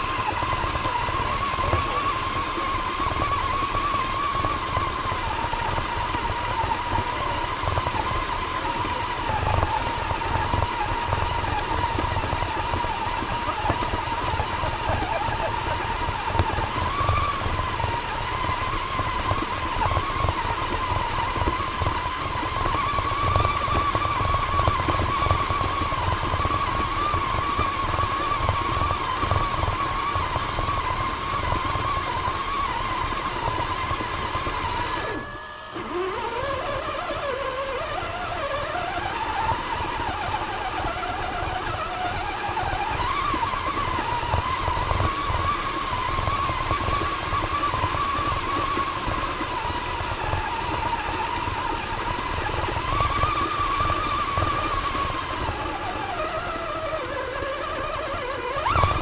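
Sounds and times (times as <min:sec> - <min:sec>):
electric motor and gears whining: 0:00.0 - 0:59.0.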